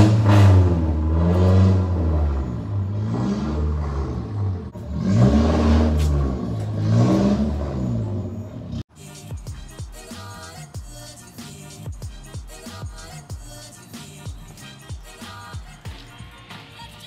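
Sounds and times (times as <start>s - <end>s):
vehicle engine revving: 0.0s - 8.9s.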